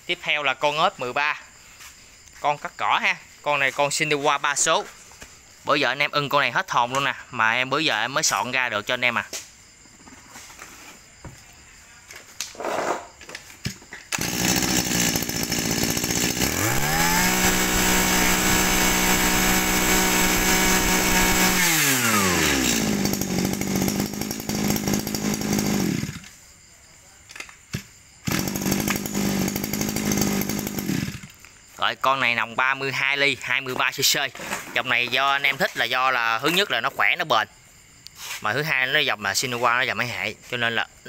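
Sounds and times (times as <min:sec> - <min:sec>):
brush cutter engine: 0:14.1 - 0:26.4, 0:28.2 - 0:31.4.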